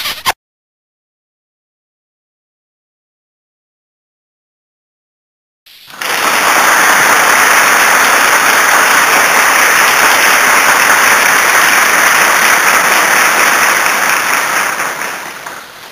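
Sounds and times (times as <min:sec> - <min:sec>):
crowd applauding: 0:05.9 - 0:15.9.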